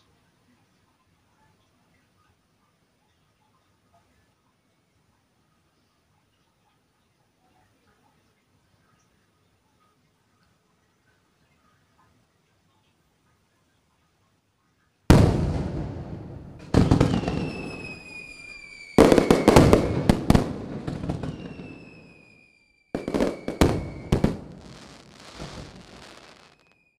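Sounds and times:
fireworks bangs and crackling: 15.1 - 26.9
falling firework whistle: 15.1 - 27.0.

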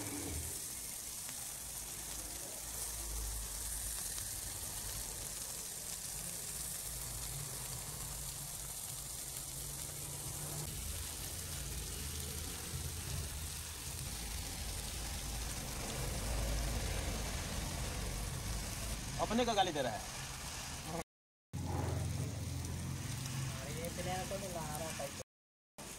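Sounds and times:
oil sizzling around frying fish: 0.0 - 21.0, 21.6 - 25.2
low rumble: 9.8 - 19.2, 21.6 - 24.0.

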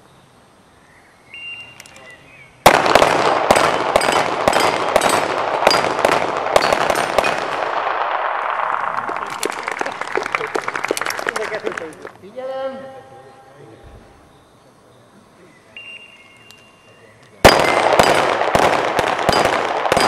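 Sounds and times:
handguns firing: 2.7 - 8.2, 17.5 - 20.0
steel targets ringing: 3.6 - 7.6.

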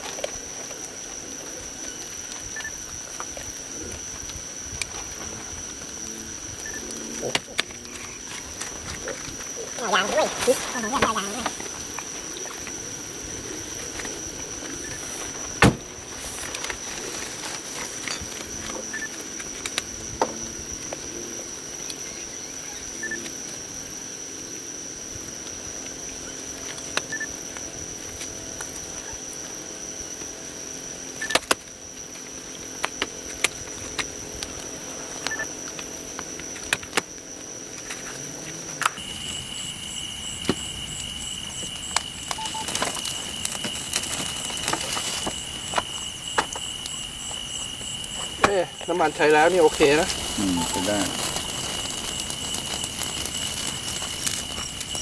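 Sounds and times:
insects trilling: 0.0 - 55.0
low steady insect trill: 0.0 - 55.0.

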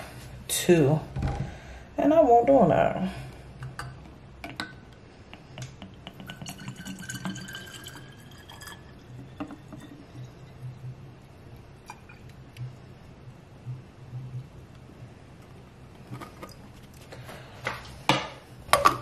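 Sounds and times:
liquid trickling and glugging: 5.7 - 11.0, 11.8 - 12.7.

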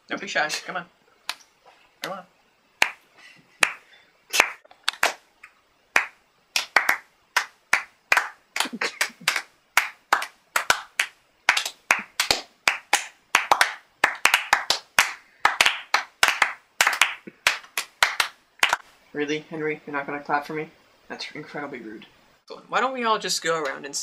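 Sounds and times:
people clapping: 2.8 - 3.0, 3.6 - 5.2, 6.0 - 18.8.

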